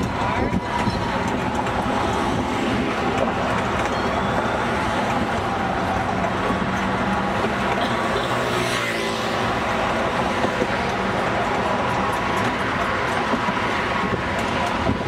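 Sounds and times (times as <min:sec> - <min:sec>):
cars rushing past: 0:00.1 - 0:15.0
car passing: 0:03.8 - 0:12.1.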